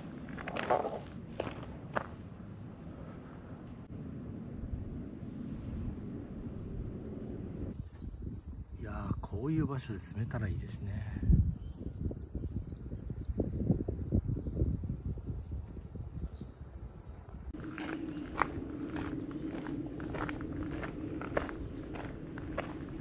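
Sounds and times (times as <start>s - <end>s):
songbird chirping: 0.0s - 6.6s, 7.4s - 22.8s
low rumbling noise: 0.0s - 7.9s, 17.4s - 23.0s.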